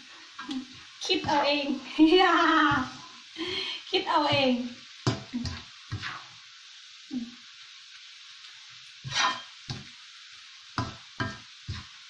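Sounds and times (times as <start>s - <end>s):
chicken sizzling in oil: 0.0s - 12.0s
spatula scraping a pan: 5.1s - 6.4s, 9.0s - 10.0s, 10.8s - 12.0s.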